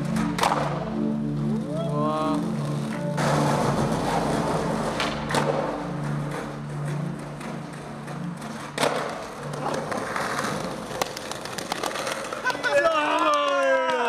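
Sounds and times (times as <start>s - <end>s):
skateboard clacks popping and landing: 0.2s - 0.8s, 2.9s - 12.6s.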